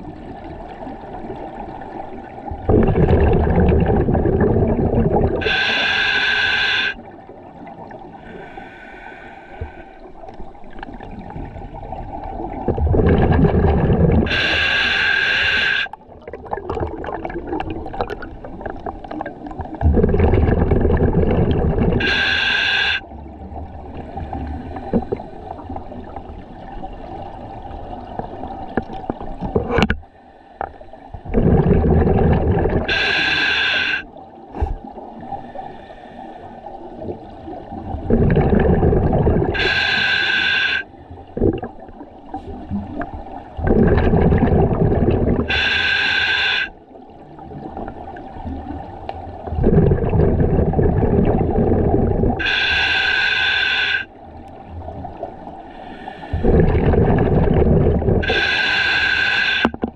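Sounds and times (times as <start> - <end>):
bubbling exhaled air: 2.5 - 7.1, 10.9 - 26.4, 30.6 - 54.1, 54.9 - 59.9
hissing regulator inhalations: 5.4 - 7.0, 8.2 - 10.1, 14.2 - 16.0, 22.0 - 23.1, 32.7 - 36.6, 39.5 - 41.0, 45.3 - 46.8, 52.4 - 54.2, 55.7 - 59.9.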